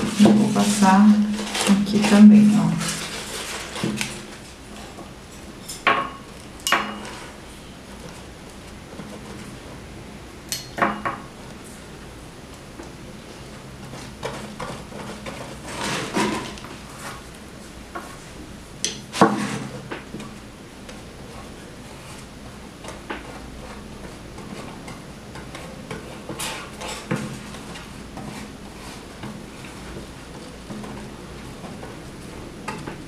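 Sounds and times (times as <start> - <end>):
paper rustling: 0.0 - 5.0.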